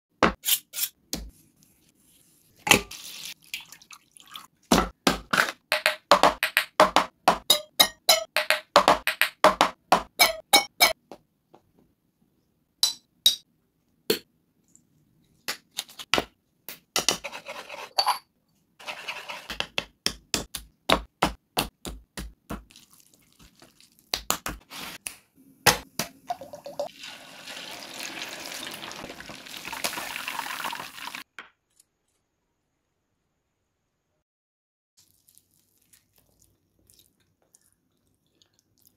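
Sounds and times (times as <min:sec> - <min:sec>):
chicken deep-frying in hot oil: 0:22.7 - 0:24.1, 0:26.5 - 0:31.3, 0:35.0 - 0:38.9.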